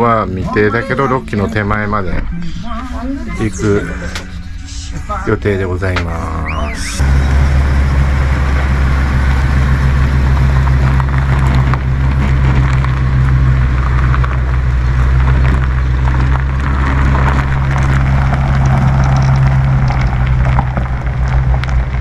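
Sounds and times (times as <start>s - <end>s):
vehicle engine running: 0.0s - 22.0s
tyres crackling over gravel: 7.0s - 22.0s.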